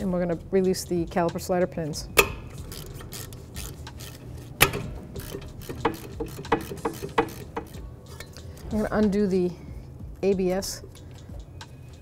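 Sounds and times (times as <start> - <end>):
ratchet clicking: 2.1 - 8.5.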